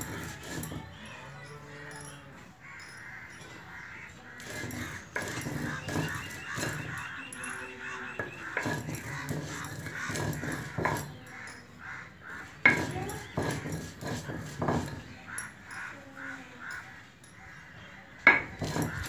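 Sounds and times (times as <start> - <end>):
stone roller grinding seeds: 0.0 - 19.0
harsh bird calls: 0.1 - 19.0
stone knocking on stone: 8.2 - 11.2, 12.6 - 15.1, 18.3 - 19.0.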